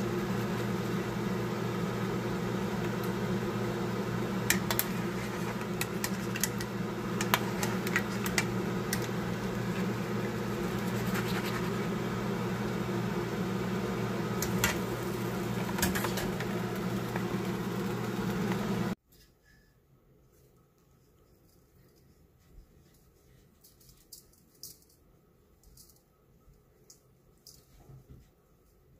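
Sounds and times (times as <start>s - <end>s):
motor hum: 0.0s - 19.0s.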